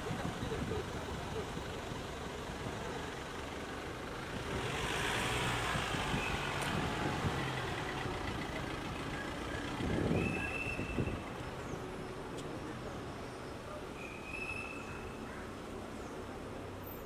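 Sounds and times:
cars driving slowly past: 0.0s - 14.0s.

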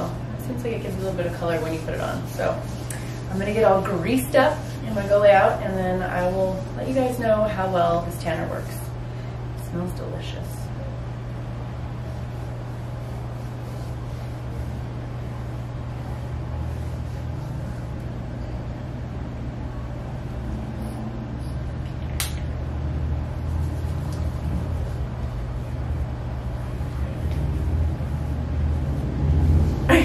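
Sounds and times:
air conditioner humming: 0.0s - 30.0s
sharp click: 22.2s - 22.5s.

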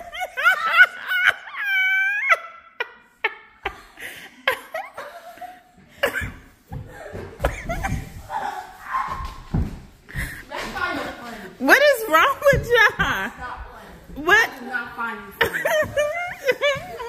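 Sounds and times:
girl giggling and laughing: 0.0s - 9.0s, 15.3s - 17.0s
thumps: 9.0s - 10.9s, 12.0s - 14.5s.

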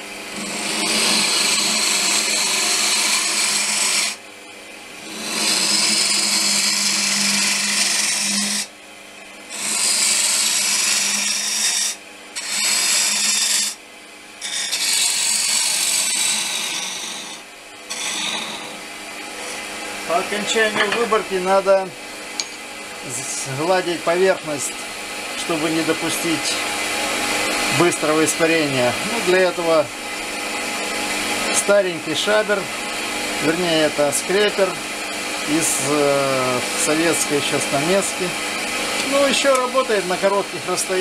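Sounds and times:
lathe humming: 0.0s - 41.0s
gouge cutting wood on lathe: 0.3s - 4.2s, 5.0s - 8.7s, 9.5s - 13.8s, 14.4s - 18.8s.

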